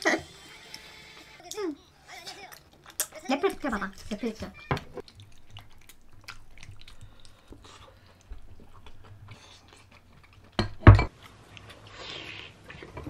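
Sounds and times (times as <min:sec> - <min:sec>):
chewing noodles: 0:05.0 - 0:10.6.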